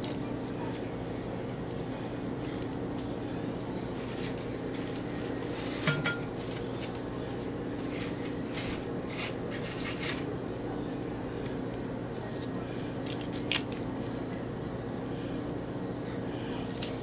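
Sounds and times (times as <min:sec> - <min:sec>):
chips rustling: 0:07.8 - 0:10.3, 0:12.2 - 0:14.4.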